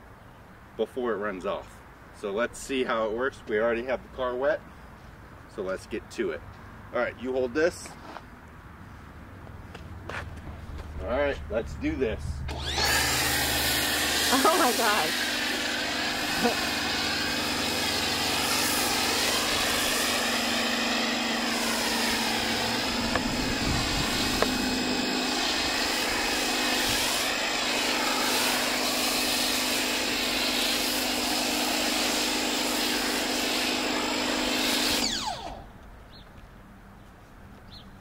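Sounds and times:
pressure washer running: 12.5s - 35.7s
foam spray hiss: 16.2s - 20.7s, 25.4s - 33.8s.

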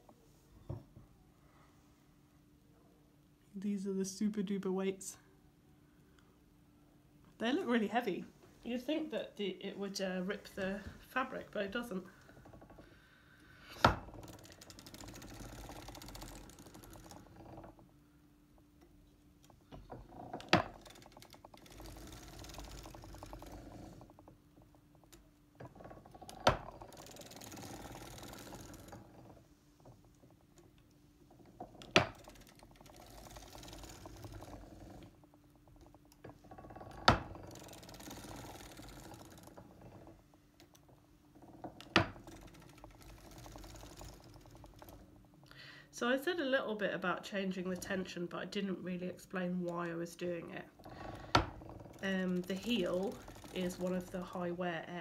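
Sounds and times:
clatter of knitting machine needles: 7.4s - 12.9s, 13.7s - 55.0s
sharp machine clicks: 52.0s - 54.9s.

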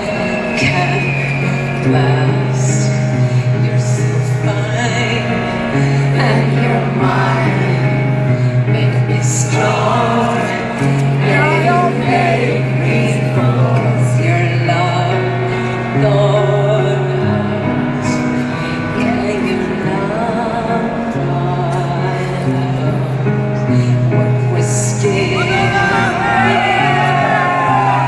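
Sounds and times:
person singing: 0.0s - 28.0s.

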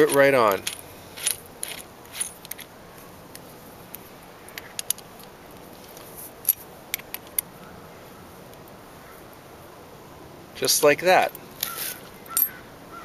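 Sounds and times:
small metallic clicks of a bolt: 6.5s - 7.5s.

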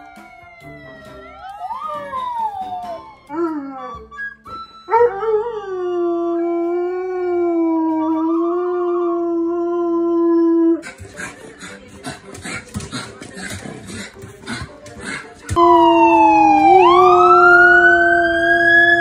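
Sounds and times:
dogs howling: 15.6s - 19.0s.

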